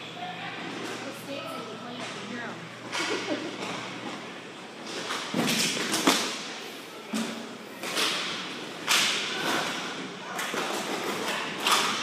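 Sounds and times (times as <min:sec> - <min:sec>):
skate wheels and sticks scraping: 0:04.8 - 0:06.6, 0:07.4 - 0:12.0.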